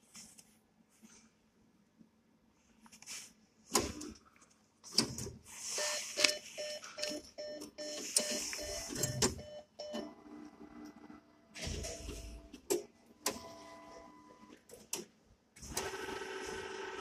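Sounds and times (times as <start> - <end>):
short repeated tones: 5.7 - 10.1.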